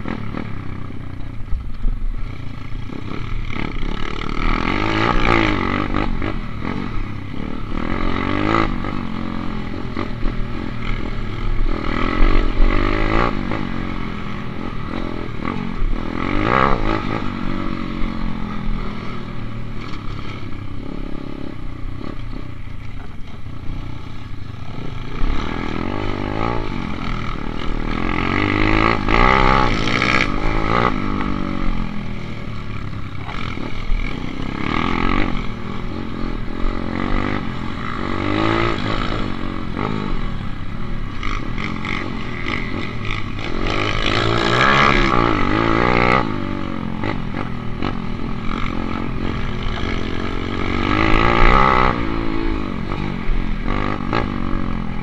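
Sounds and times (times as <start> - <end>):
dirt bike engine revving: 0.0 - 55.0.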